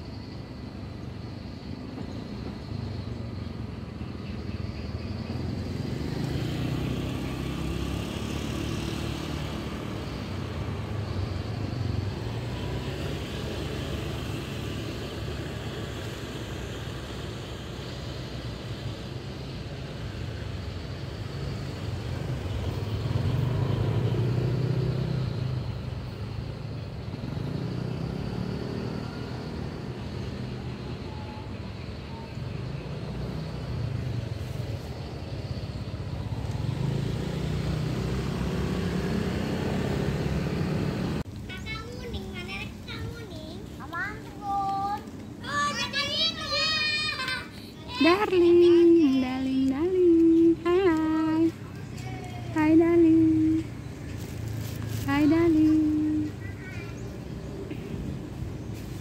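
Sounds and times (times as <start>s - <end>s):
road traffic rumble: 0.0s - 59.0s
loud vehicle passing: 5.3s - 31.6s, 32.3s - 41.3s.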